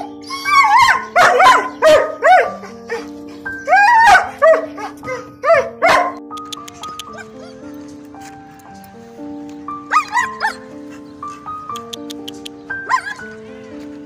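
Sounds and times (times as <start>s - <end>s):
background music with held notes: 0.0s - 14.0s
dog barking: 0.7s - 3.1s, 4.0s - 7.5s, 9.9s - 13.2s.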